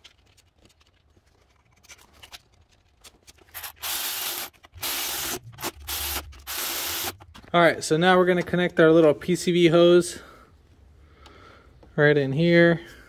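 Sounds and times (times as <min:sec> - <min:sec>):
power ratchet running: 0:03.6 - 0:07.2.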